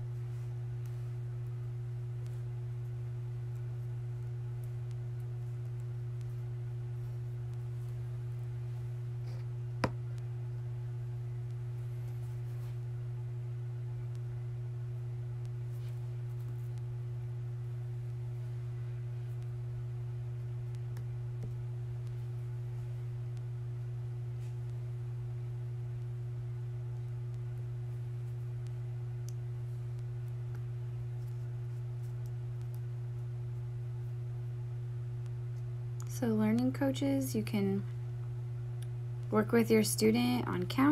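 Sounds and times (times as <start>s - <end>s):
low electrical hum: 0.0s - 40.9s.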